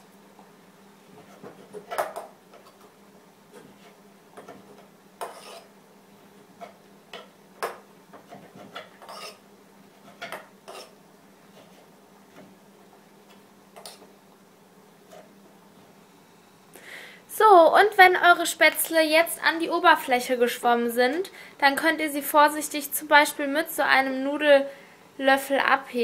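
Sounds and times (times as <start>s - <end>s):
faint steady hum: 0.0s - 26.0s
knife scraping wooden board: 5.2s - 5.7s, 8.2s - 9.4s, 10.0s - 11.0s.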